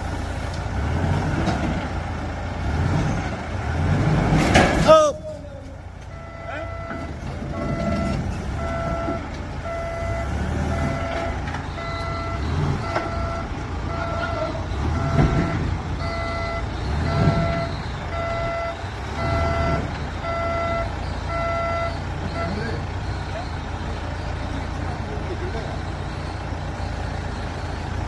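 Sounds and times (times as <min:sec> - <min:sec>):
forklift engine running: 0:00.0 - 0:28.0
reversing alarm beeping: 0:06.1 - 0:28.0.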